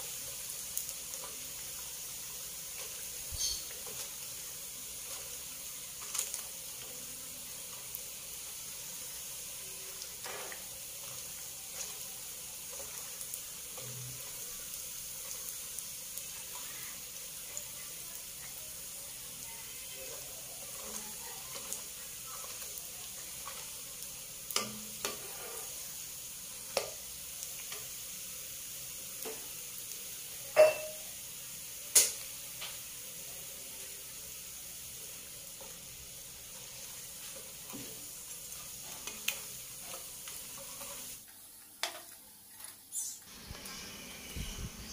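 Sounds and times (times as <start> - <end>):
crackers sizzling in hot oil: 0.0 - 44.9
metal ladle clinking on wok: 30.6 - 31.0.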